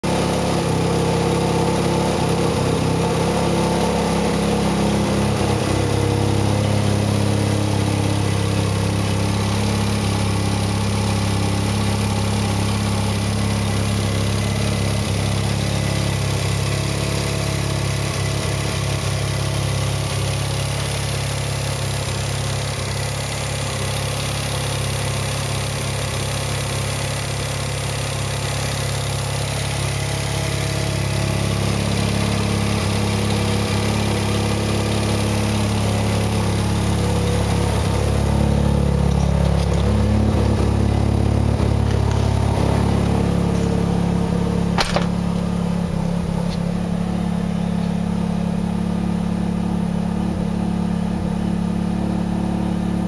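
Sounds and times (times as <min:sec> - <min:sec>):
rotary engine idling: 0:28.5 - 0:48.2.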